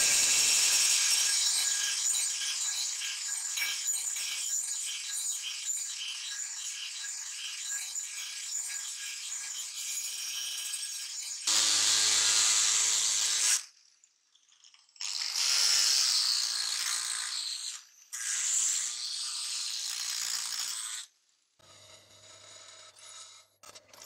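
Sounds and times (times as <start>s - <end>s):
angle grinder grinding steel: 0.0s - 4.7s.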